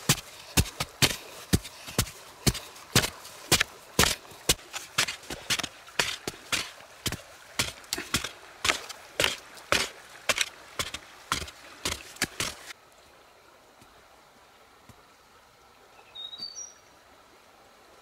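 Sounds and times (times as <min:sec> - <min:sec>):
digging tool striking earth: 0:00.0 - 0:12.7
faint outdoor background: 0:00.0 - 0:18.0.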